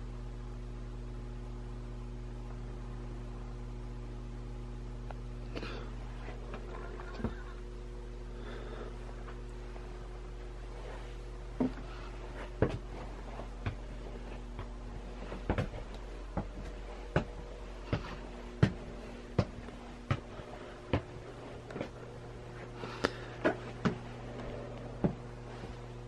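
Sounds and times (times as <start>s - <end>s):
low electrical hum: 0.0s - 26.0s
footsteps on wooden stairs: 11.5s - 22.7s, 23.4s - 25.8s.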